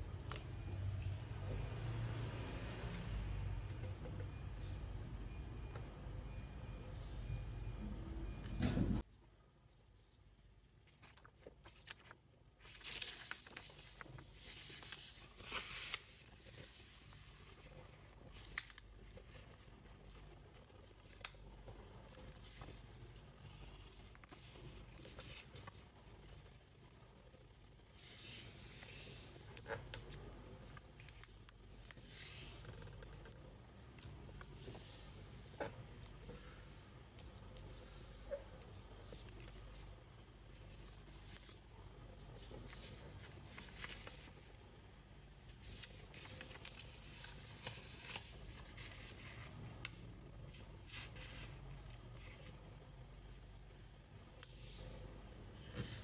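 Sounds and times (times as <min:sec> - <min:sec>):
low steady hum: 0:00.0 - 0:56.0
paper rustling and crinkling: 0:10.8 - 0:20.2, 0:34.3 - 0:44.4, 0:45.6 - 0:52.6
paper crinkle: 0:10.8 - 0:25.9, 0:42.2 - 0:44.4, 0:45.6 - 0:50.0.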